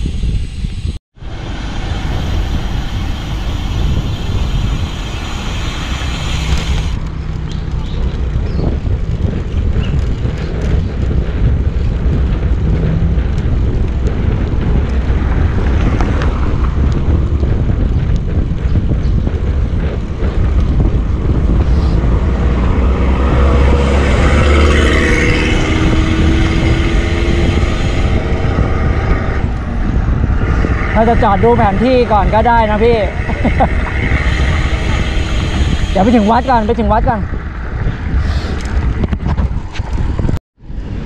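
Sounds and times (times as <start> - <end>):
road noise: 0.0 - 41.0
wind buffeting microphone: 0.0 - 41.0
passing vehicle engine drone: 1.2 - 8.2, 20.1 - 39.0.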